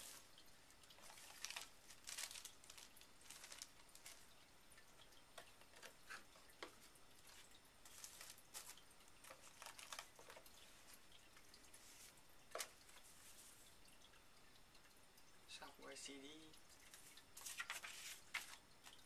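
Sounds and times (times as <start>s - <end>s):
plastic wrapper and paper crinkling: 0.9s - 4.5s, 5.4s - 10.7s, 16.9s - 19.0s.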